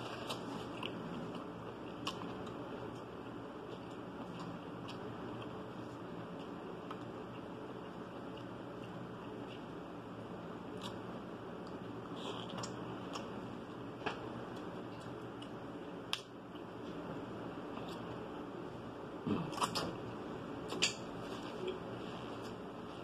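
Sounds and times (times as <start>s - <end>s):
soft mouth sounds from eating: 12.1s - 13.3s.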